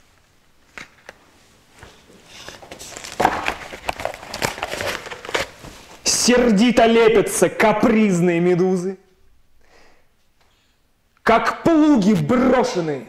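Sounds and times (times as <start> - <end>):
paper crinkling and rustling: 0.6 - 6.2.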